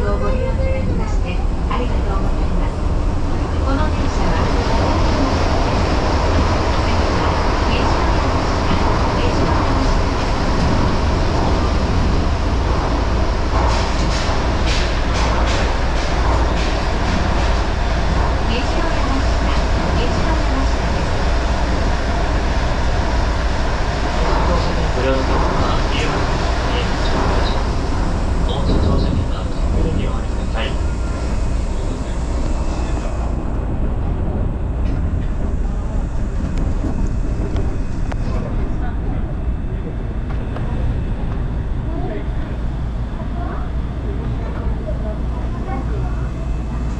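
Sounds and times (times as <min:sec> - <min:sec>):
monorail rumbling: 0:00.0 - 0:46.9.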